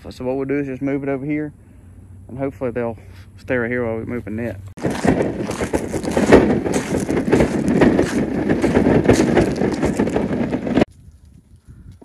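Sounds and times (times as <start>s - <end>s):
wooden shelter frame rattling: 4.8s - 10.9s.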